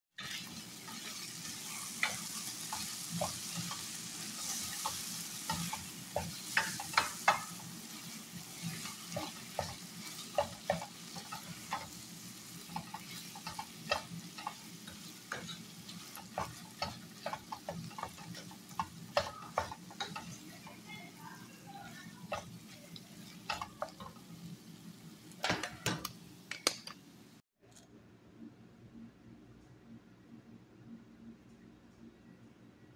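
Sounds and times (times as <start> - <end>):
wooden spatula scraping a pan: 0.2 - 24.2
chicken sizzling in a frying pan: 0.2 - 26.4.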